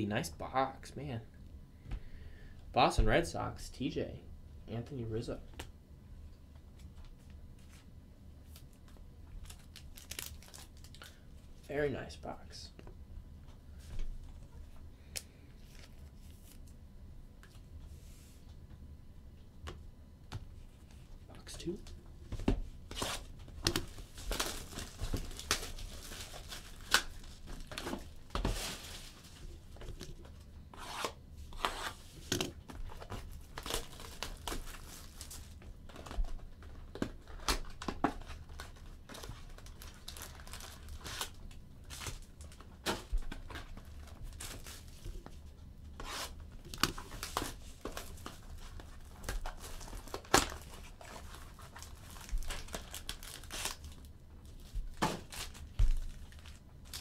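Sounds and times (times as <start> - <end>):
wrapping crinkling: 7.6 - 11.2, 22.9 - 29.6, 37.2 - 42.7, 46.6 - 57.0.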